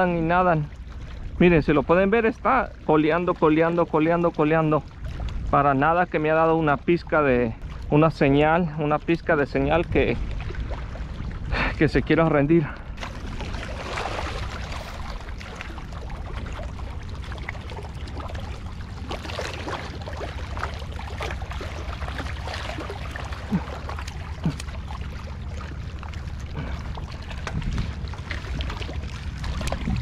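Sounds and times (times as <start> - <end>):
seawater lapping and splashing: 0.0 - 30.0
wind noise on microphone: 26.6 - 30.0.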